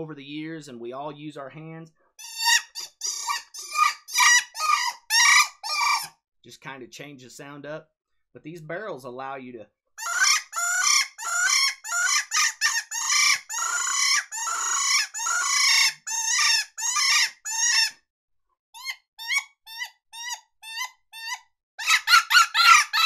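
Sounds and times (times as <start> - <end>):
predator call raspy squeals: 2.2 - 6.1, 10.0 - 18.0, 18.8 - 23.0.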